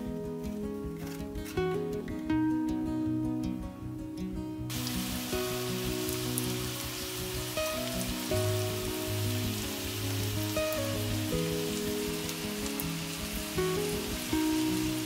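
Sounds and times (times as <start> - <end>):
background music of sustained chords: 0.0 - 15.0
potatoes sizzling in oil: 4.7 - 15.0.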